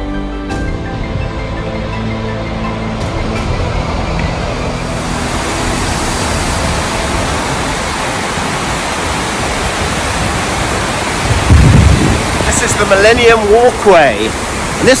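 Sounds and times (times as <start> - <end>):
white water tumbling over rocks: 4.1 - 15.0.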